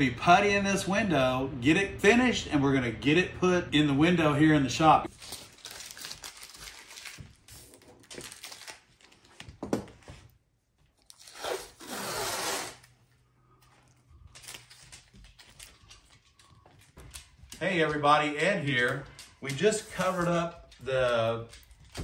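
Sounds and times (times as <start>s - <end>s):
tape ripping and crinkling: 5.1s - 9.6s, 11.0s - 13.0s, 14.3s - 16.4s
long tape rip from roll: 11.1s - 13.0s.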